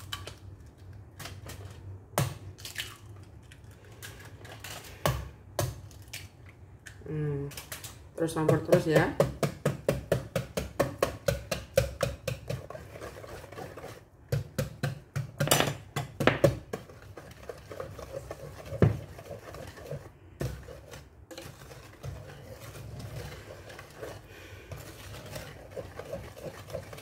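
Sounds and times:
whisk clicking against metal pot: 8.3 - 27.0.

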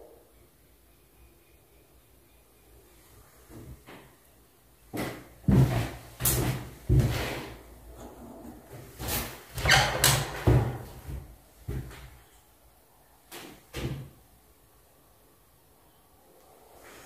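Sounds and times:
wooden shutters knocking and rattling: 9.5 - 11.0.

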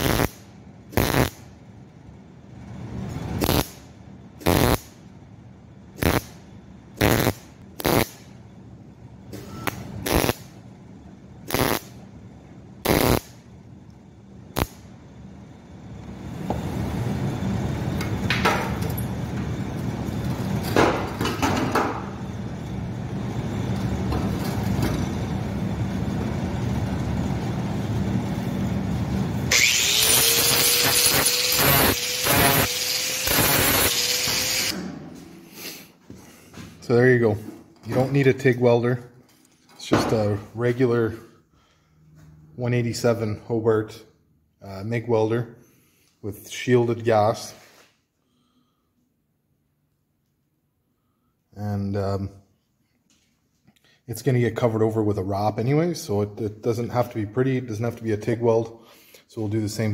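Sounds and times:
welder sputtering: 0.0 - 1.5, 3.4 - 5.0, 5.9 - 6.4, 7.0 - 8.3, 9.6 - 10.5, 11.4 - 12.0, 12.8 - 13.4, 14.5 - 14.8, 29.5 - 34.8
angle grinder spinning up: 29.5 - 34.8.

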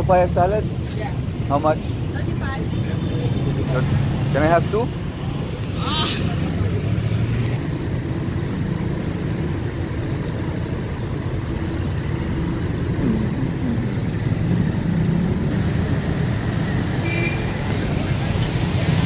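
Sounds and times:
cars and motorbikes passing: 0.0 - 19.0.

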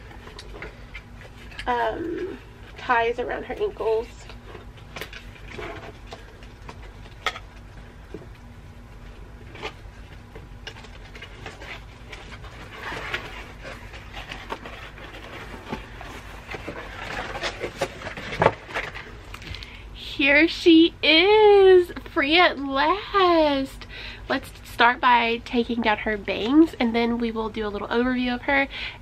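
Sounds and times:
plastic rustling: 0.0 - 19.8.

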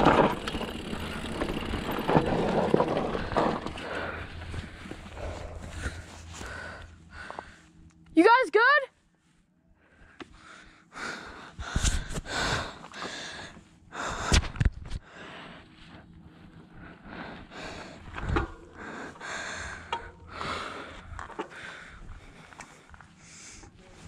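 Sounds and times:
bike knocking and rattling on bumps: 0.0 - 7.3
rushing noise of bike riding: 0.0 - 7.6.

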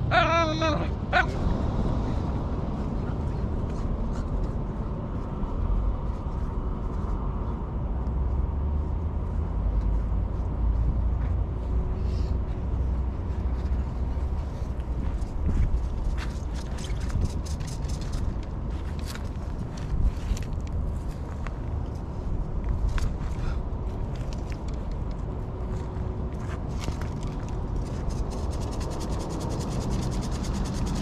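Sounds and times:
wind buffeting microphone: 1.0 - 8.5, 12.6 - 28.4.

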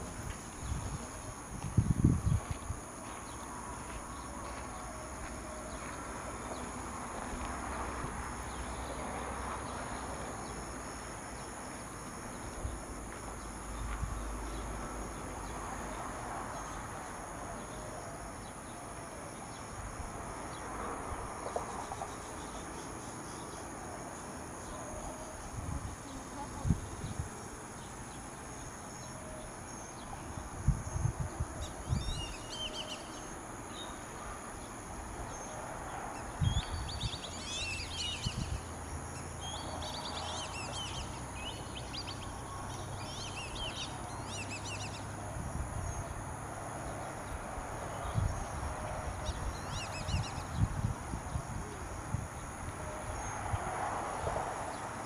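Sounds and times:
high-pitched insect chorus: 0.0 - 55.0
bird chirp: 36.4 - 45.1, 49.2 - 50.7.

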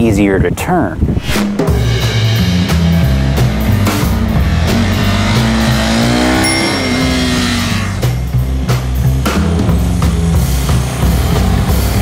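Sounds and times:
background music with bass and drums: 1.0 - 12.0
motorcycle engine revving: 3.1 - 8.4.

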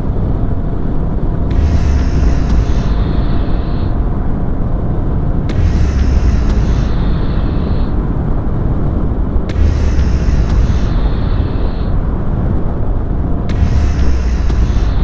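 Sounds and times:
wind noise: 0.0 - 15.0
motorcycle engine running: 5.5 - 7.8.

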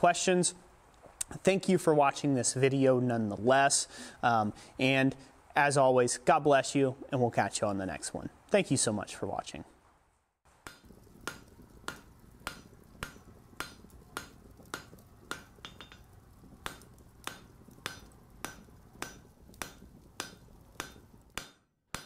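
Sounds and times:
low steady hum: 10.6 - 21.4
hammer striking anvil: 10.7 - 16.1, 16.7 - 22.0.

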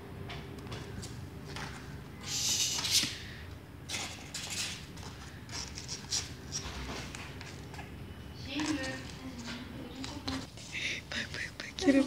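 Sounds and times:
kittens scratching cardboard box: 4.4 - 7.9, 8.5 - 10.7.

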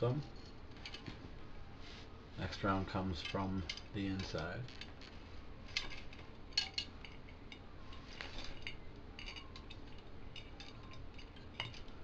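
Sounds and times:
metal spokes clicking and clinking: 2.9 - 12.0.

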